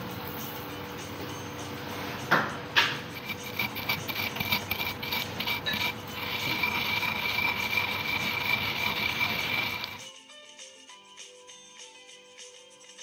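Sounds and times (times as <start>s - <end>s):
pestle grinding seeds on stone: 2.8s - 10.1s.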